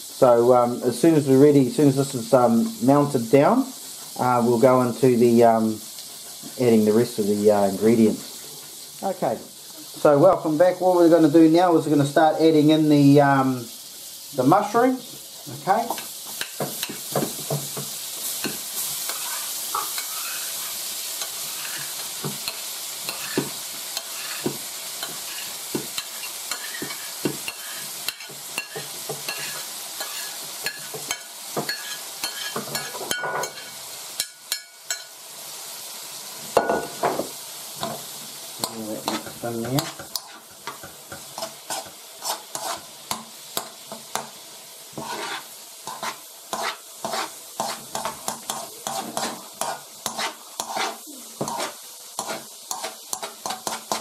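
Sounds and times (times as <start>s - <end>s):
mushrooms sizzling in butter: 0.0s - 54.0s
spoon knocking and scraping: 21.6s - 35.1s.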